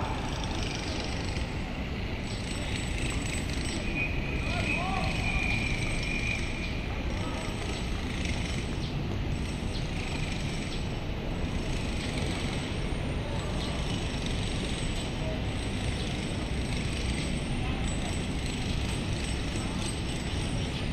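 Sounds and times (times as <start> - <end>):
steady outdoor noise: 0.0 - 20.9
distant shouts: 3.9 - 7.8.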